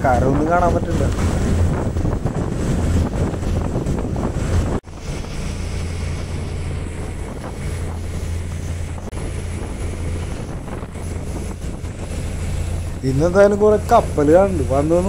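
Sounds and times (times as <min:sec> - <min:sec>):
boat engine droning: 0:00.0 - 0:15.0
wind on microphone: 0:00.0 - 0:15.0
water hissing along hull: 0:04.4 - 0:15.0.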